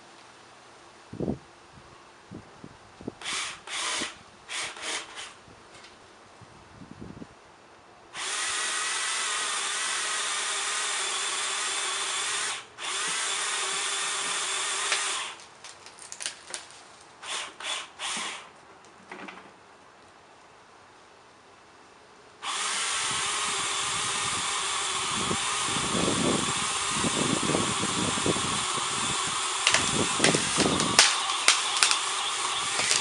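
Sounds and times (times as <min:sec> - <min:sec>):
electric pole saw cutting limb: 0:03.2 - 0:05.4, 0:08.2 - 0:15.5, 0:17.2 - 0:18.6, 0:22.4 - 0:33.0.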